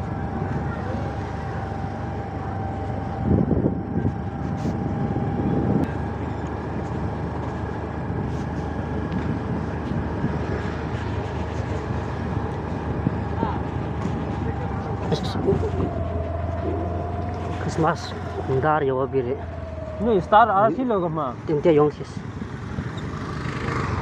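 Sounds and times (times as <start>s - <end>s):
motorcycle engine running: 0.0s - 24.0s
road and wind rumble: 0.0s - 24.0s.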